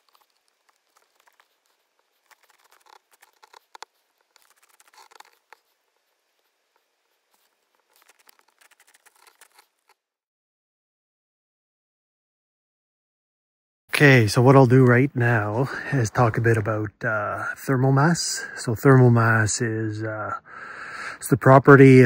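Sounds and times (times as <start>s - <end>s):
faint rustling and crackling: 0.0s - 10.0s.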